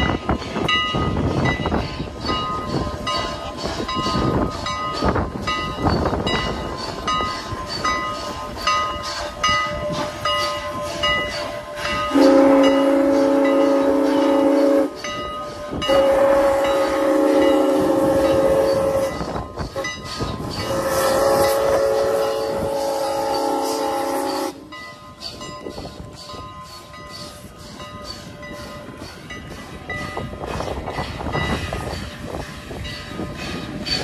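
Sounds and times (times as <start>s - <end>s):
crossing signal bell dinging: 0.0s - 34.0s
steam locomotive chuffing: 0.0s - 34.0s
steam whistle blasts: 11.8s - 24.7s.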